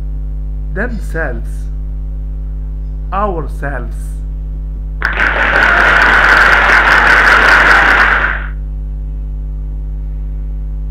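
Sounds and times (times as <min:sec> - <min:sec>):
electrical mains hum: 0:00.0 - 0:10.9
loud rushing noise: 0:05.0 - 0:08.6.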